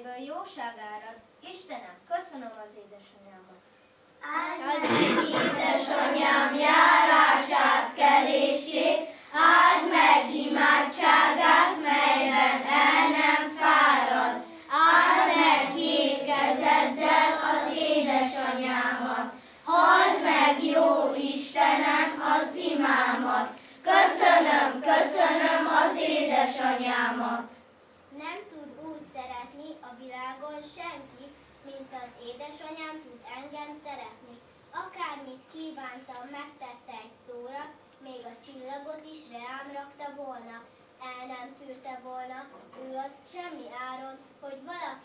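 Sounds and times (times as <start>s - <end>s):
children's choir singing: 4.6s - 27.6s.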